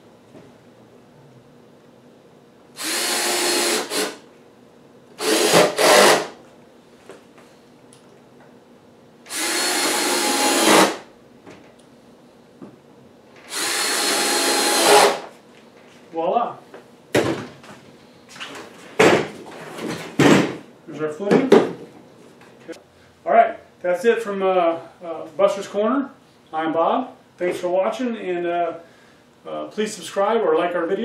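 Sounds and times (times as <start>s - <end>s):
cordless drill driving screws into wood: 2.8s - 4.2s, 5.2s - 6.4s, 9.3s - 11.0s, 13.4s - 15.3s.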